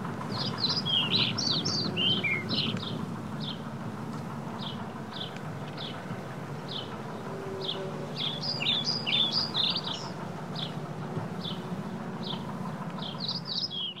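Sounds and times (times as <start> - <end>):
low rumble of riding: 0.0 - 14.0
birds chirping and singing: 0.3 - 3.7, 4.6 - 10.8, 11.4 - 14.0.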